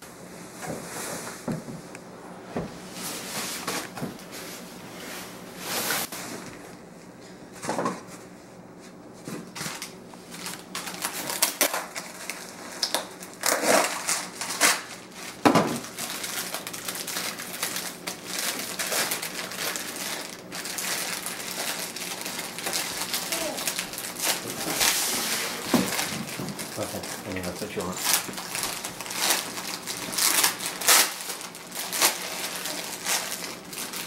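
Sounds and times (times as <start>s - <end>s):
plastic bag crinkling: 9.6s - 34.0s.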